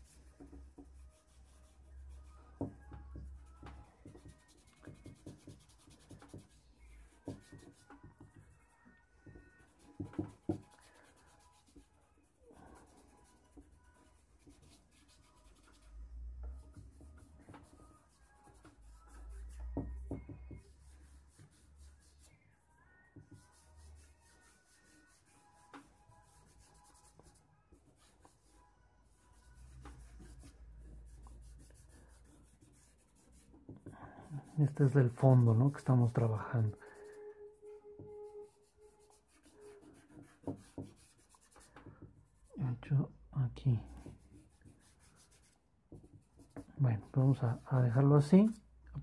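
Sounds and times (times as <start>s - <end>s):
charcoal rubbing on paper: 0.0s - 42.6s, 43.9s - 48.6s
charcoal scraping on paper: 38.1s - 41.8s.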